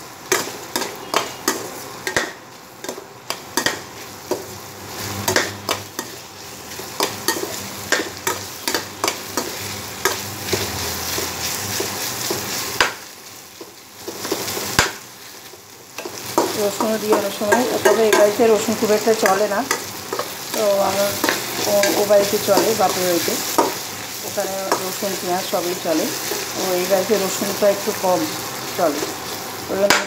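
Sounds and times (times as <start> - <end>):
vegetables sizzling in oil: 0.0 - 30.0
ladle stirring and scraping pan: 0.3 - 13.0, 16.0 - 25.5.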